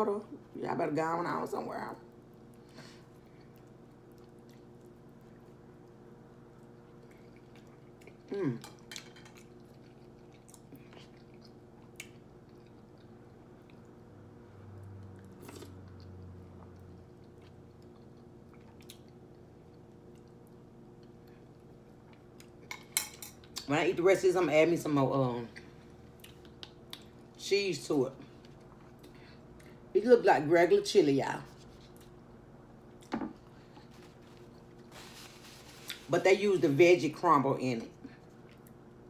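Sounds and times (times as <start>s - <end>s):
steady low hum: 0.0s - 39.0s
soft chewing: 2.0s - 23.7s, 25.5s - 27.4s, 28.2s - 29.9s, 31.4s - 36.1s, 37.9s - 39.0s.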